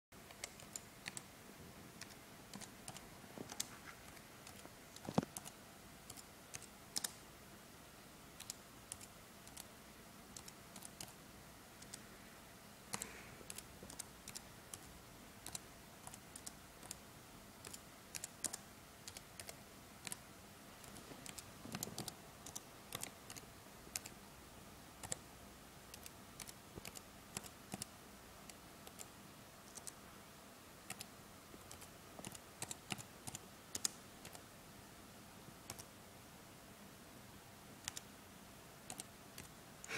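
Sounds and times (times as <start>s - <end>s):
typing on computer keyboard: 0.2s - 1.3s, 2.0s - 3.8s, 4.4s - 7.2s, 8.4s - 9.7s, 10.3s - 11.2s, 11.8s - 12.0s, 12.9s - 17.0s, 17.6s - 20.2s, 20.8s - 24.2s, 25.0s - 25.2s, 25.9s - 29.1s, 29.7s - 30.0s, 30.8s - 34.5s, 35.6s - 35.9s, 37.8s - 38.1s, 38.8s - 39.9s.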